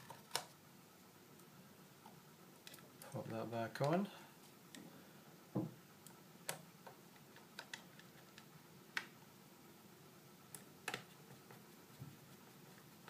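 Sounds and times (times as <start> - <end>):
small parts clicking and tapping: 6.0 - 9.1.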